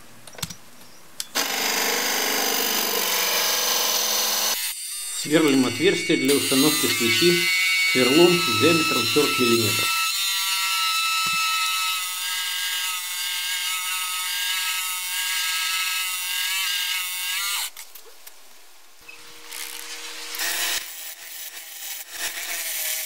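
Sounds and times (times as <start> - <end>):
wood lathe humming: 1.4 - 10.2
drill bit whining in wood: 1.4 - 12.9.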